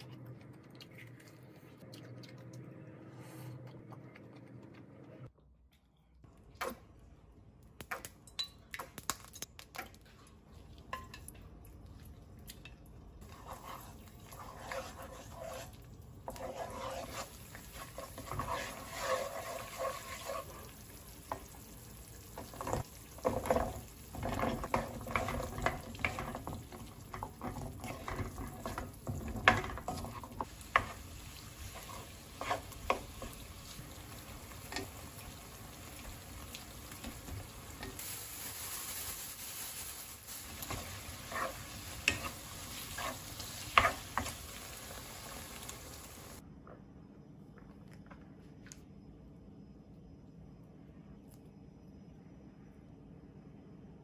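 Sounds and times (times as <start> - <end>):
utensil scraping a pan: 13.2 - 20.7, 22.4 - 33.8, 40.6 - 44.7
food sizzling in a pan: 13.2 - 46.4.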